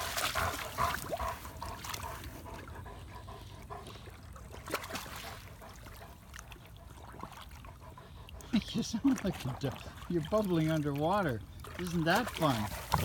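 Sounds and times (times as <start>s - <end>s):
faint water bubbling: 0.0s - 13.0s
water splashes: 0.0s - 13.0s.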